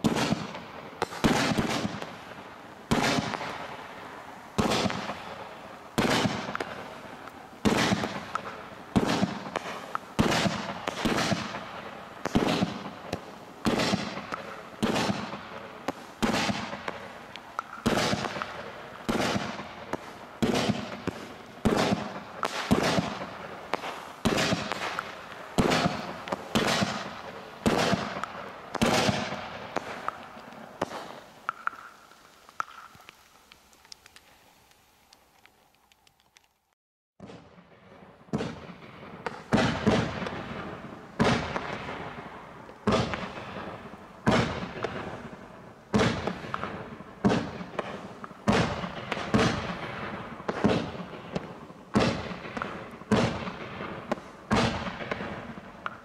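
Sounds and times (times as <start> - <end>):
firework shells banging: 4.5 - 36.5.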